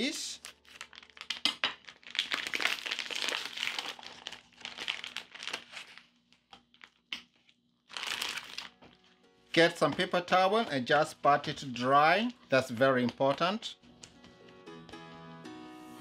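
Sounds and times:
plastic packaging crinkling: 0.4 - 9.0.

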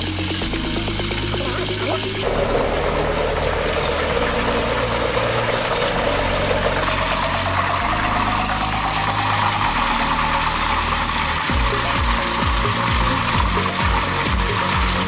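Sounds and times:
turbine whine rising in pitch: 0.0 - 15.0
water rushing into a pipe: 0.0 - 15.0.

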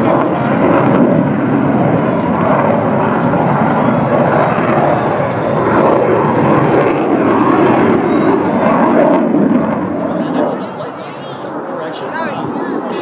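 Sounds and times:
jet flying overhead: 0.0 - 13.0.

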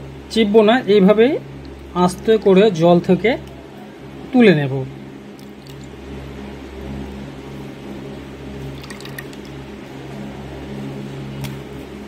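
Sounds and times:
steady low hum: 0.0 - 12.0
wet squishing in water: 5.3 - 5.9, 8.7 - 9.6.

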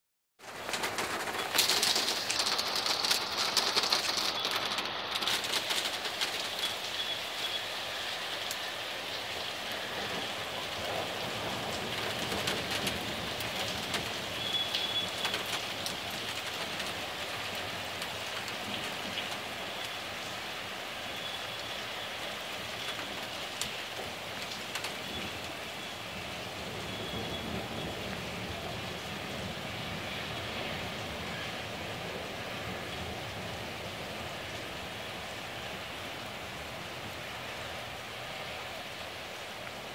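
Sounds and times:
heavy rain splashing: 0.4 - 39.9.

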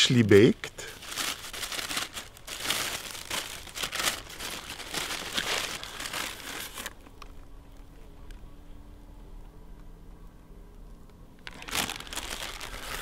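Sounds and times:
paper crinkling and rustling: 0.3 - 8.4, 11.4 - 13.0.

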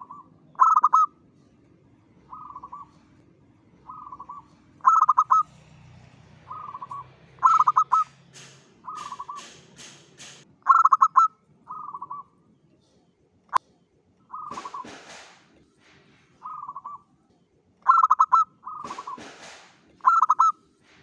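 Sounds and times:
dove cooing: 0.0 - 1.5, 2.2 - 5.6, 6.3 - 9.7, 10.6 - 12.4, 14.3 - 15.2, 16.3 - 17.1, 17.8 - 19.4, 20.0 - 20.7
sharp click: 8.3 - 10.5.

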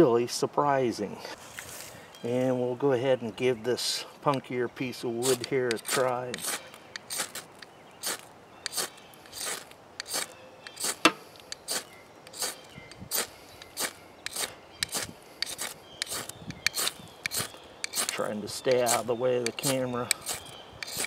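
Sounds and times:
ferro rod scraped by striker: 5.2 - 21.0.

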